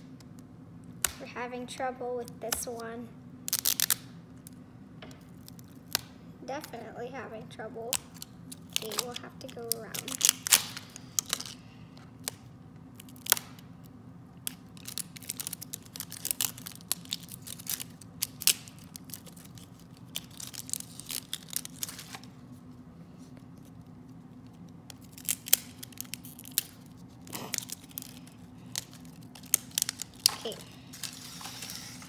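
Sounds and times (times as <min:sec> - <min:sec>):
sticker wrapping peeling: 0:03.5 - 0:04.6, 0:07.9 - 0:11.6, 0:12.2 - 0:32.0.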